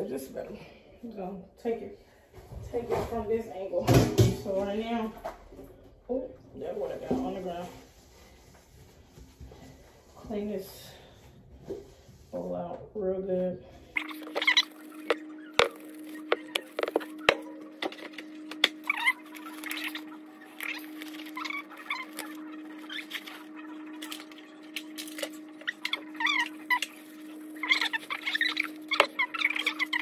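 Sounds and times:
steady hum: 13.6s - 30.0s
short squeaky chirps: 14.0s - 17.3s.

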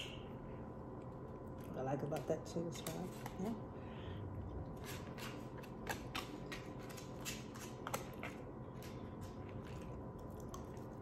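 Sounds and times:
chewing with mouth clicks: 4.5s - 11.0s.

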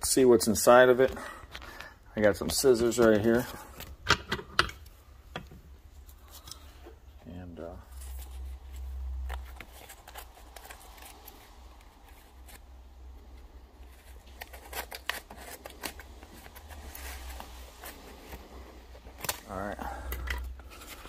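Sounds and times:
paper rustling: 7.8s - 12.7s, 13.8s - 19.6s, 20.2s - 21.0s.

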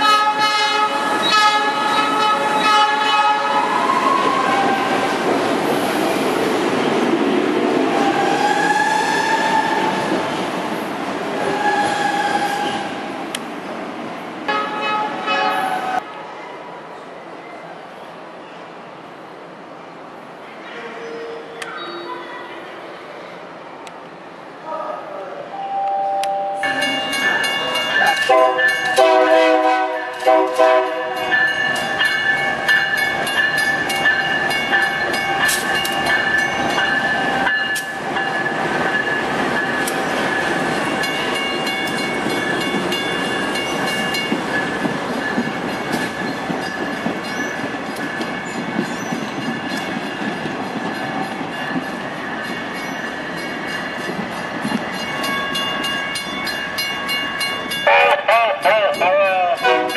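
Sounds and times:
train horn blasts: 0.0s - 4.7s, 14.5s - 16.0s, 28.2s - 31.3s, 57.9s - 58.4s, 59.6s - 59.9s
passing passenger train: 0.0s - 59.9s.

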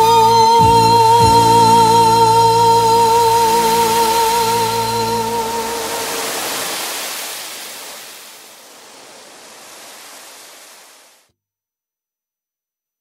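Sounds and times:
sea surf washing on beach: 2.4s - 11.3s.

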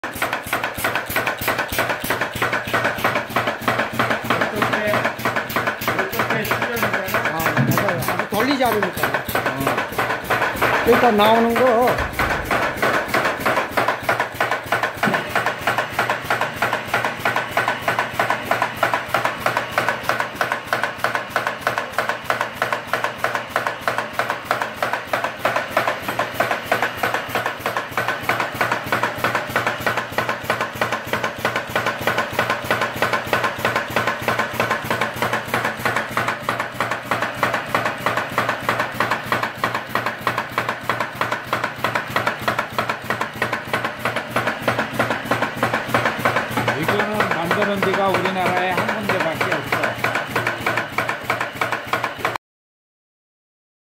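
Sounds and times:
machinery clacking: 0.0s - 52.4s
low machine hum: 2.3s - 19.6s.

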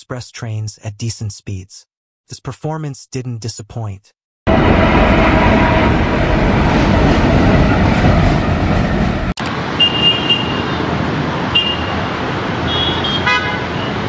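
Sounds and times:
train rumbling past: 4.5s - 12.7s
locomotive horn toots: 9.8s - 10.8s, 11.5s - 12.0s, 12.7s - 14.0s.

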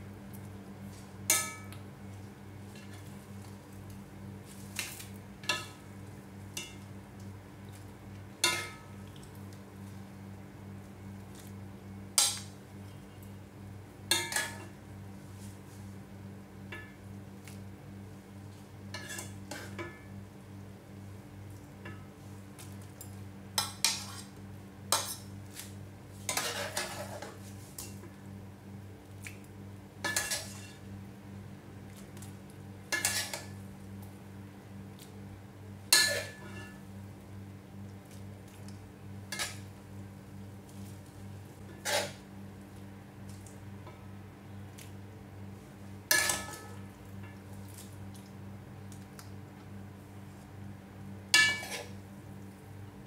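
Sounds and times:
steady low hum: 0.0s - 53.0s
metal utensil clinking on ceramic bowl: 51.4s - 51.9s.

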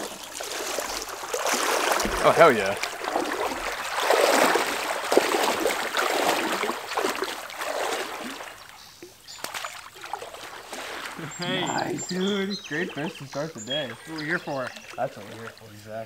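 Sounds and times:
water sloshing around wading legs: 0.0s - 16.0s.

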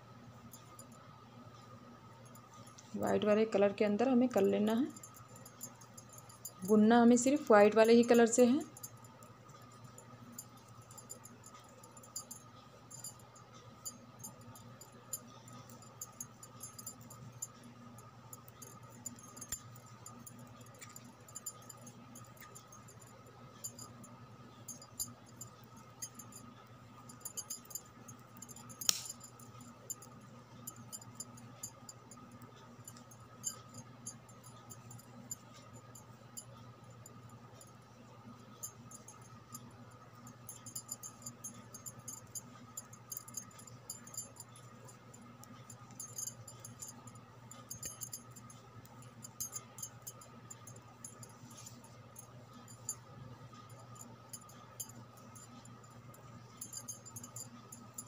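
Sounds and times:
faint steady hum: 0.0s - 58.0s
knitting needles clicking: 27.3s - 29.2s.

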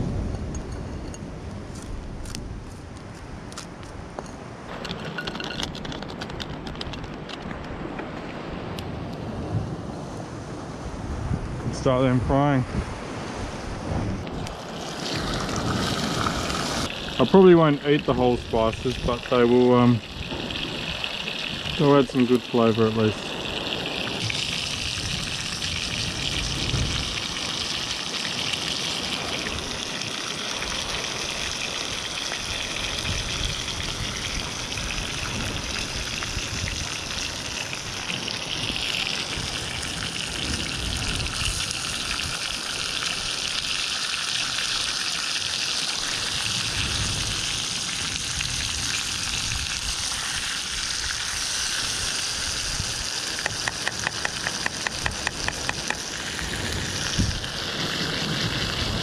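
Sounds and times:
fish sizzling in a pan: 41.5s - 57.7s.

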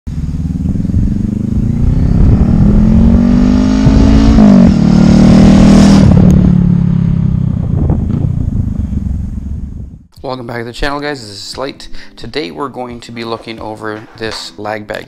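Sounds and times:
vehicle engine accelerating: 0.1s - 10.1s.

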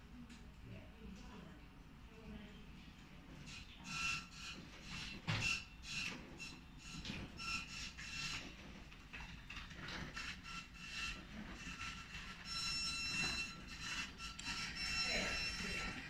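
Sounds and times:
motor high-pitched whine: 10.4s - 16.0s.

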